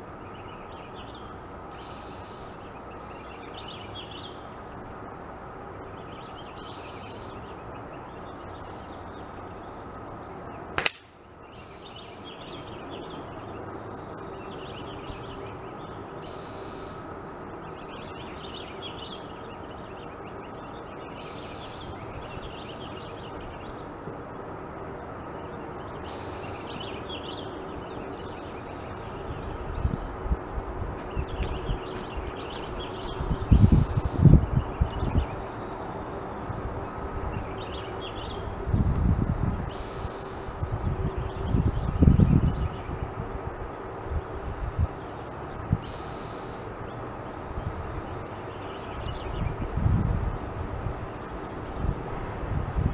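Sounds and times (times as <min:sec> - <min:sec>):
outdoor background noise: 0:00.0 - 0:52.9
air rifle shot: 0:10.8 - 0:11.2.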